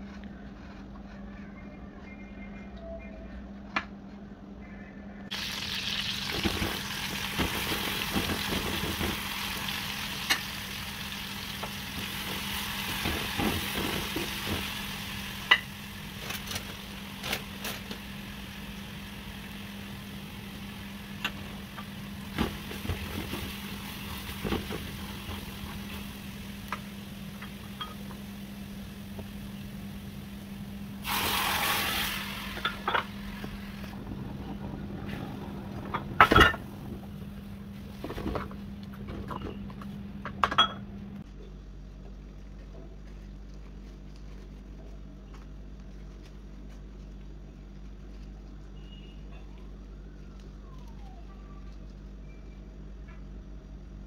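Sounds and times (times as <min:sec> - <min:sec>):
garlic sizzling in hot oil: 0:05.3 - 0:27.7, 0:31.0 - 0:34.0
broth hissing in hot pot: 0:31.0 - 0:36.0.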